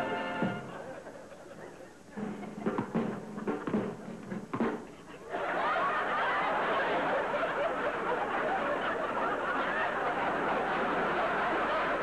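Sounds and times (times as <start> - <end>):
audience laughing and chattering: 0.0 - 12.0.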